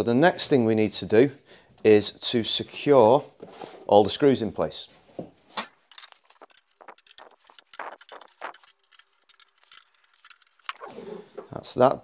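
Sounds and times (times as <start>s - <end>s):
screwdriver tightening screws: 5.9s - 11.2s.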